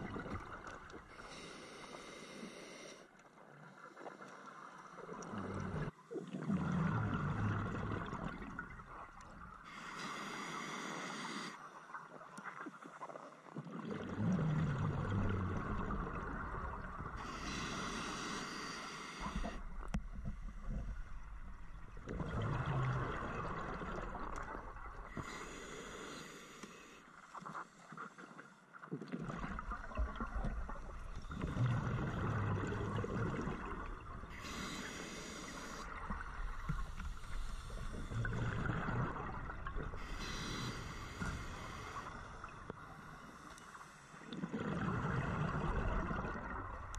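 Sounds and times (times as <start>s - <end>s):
diver inhaling through regulator: 1.1s - 3.1s, 9.6s - 11.6s, 16.8s - 21.0s, 25.1s - 27.1s, 30.2s - 45.4s
bubbling exhale: 13.6s - 21.2s, 21.8s - 27.0s, 29.1s - 46.9s.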